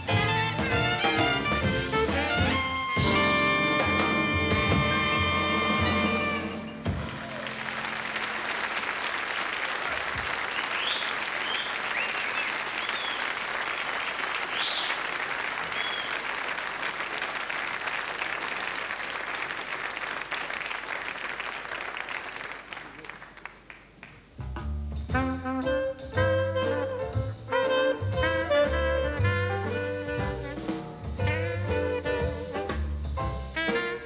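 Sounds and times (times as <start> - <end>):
jazz band playing swing: 0.0 - 8.9, 24.2 - 34.0
audience applauding: 6.9 - 24.3.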